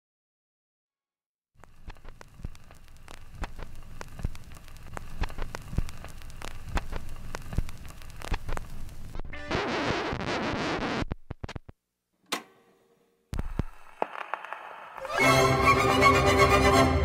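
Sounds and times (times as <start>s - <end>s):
record crackle and hiss: 1.6s - 12.0s, 13.3s - 15.7s
sharp record pops: 1.6s - 12.4s, 13.3s - 15.1s.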